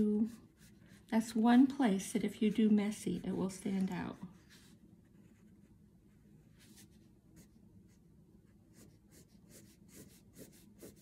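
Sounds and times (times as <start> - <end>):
pastel scratching on paper: 0.0 - 1.4, 8.7 - 11.0.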